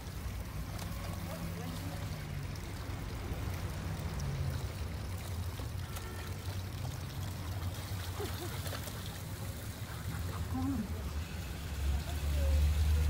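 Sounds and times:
water trickling into trough: 0.0s - 13.0s.

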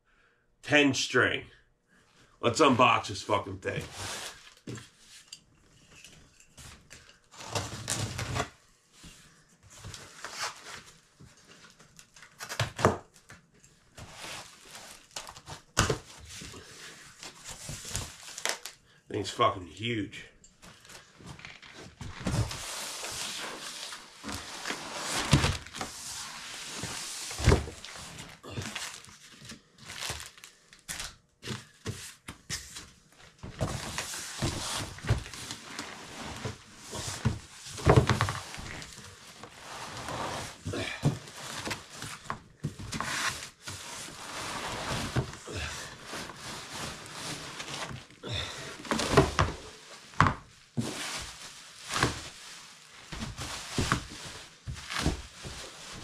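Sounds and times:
cardboard scraping and rustling: 6.6s - 8.6s, 21.3s - 30.4s, 33.5s - 48.2s, 48.8s - 56.0s
plastic wrapping crinkling: 28.7s - 31.1s.

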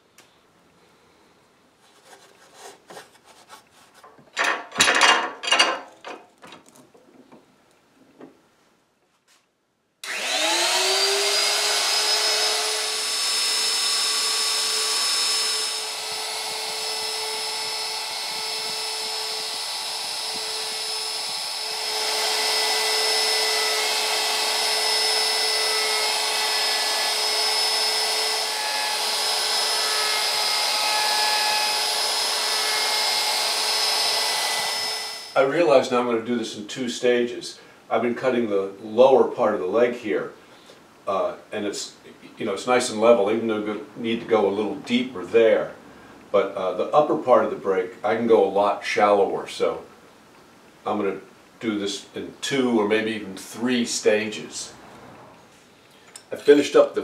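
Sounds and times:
clamps and wood clattering: 4.0s - 7.3s
wood router whining: 10.0s - 35.5s.

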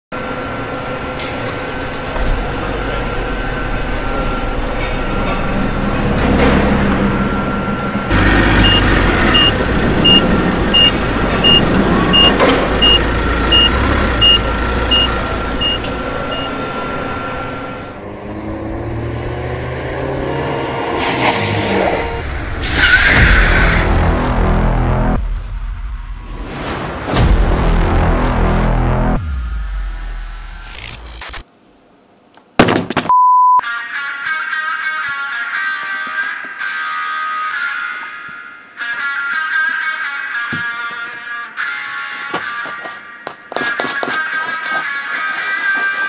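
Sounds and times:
vehicle engines running: 0.2s - 26.2s
reversing alarm beeping: 2.5s - 18.0s.

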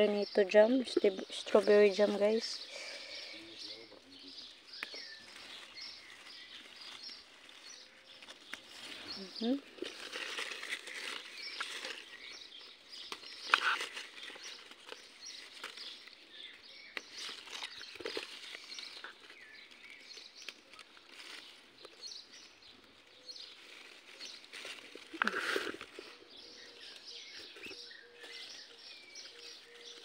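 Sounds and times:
birds chirping faintly: 0.0s - 30.0s
plant leaves rustling and crackling: 0.0s - 30.0s.

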